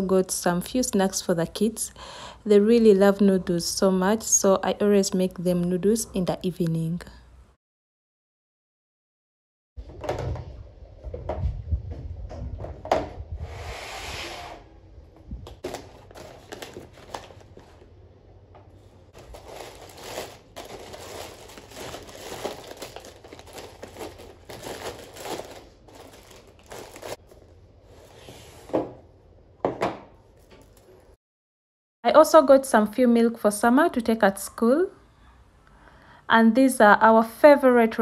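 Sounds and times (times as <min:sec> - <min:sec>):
plastic bags crinkling: 0:15.6 - 0:17.9, 0:19.1 - 0:27.2
items knocking when set down: 0:29.6 - 0:30.6.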